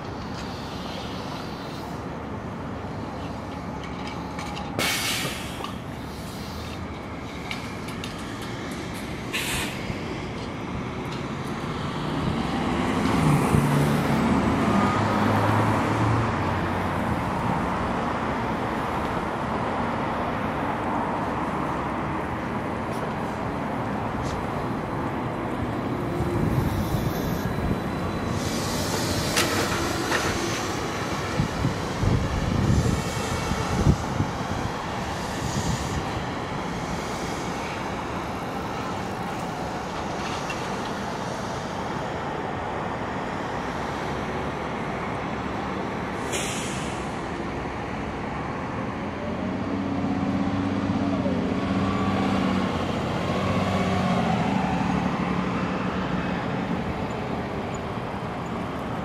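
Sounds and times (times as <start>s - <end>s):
bus engine hum: 0.0s - 59.0s
tyre and road noise: 0.0s - 59.0s
air brake hisses: 0.4s - 2.0s, 4.8s - 6.8s, 9.3s - 9.9s, 28.2s - 30.8s, 46.2s - 47.2s.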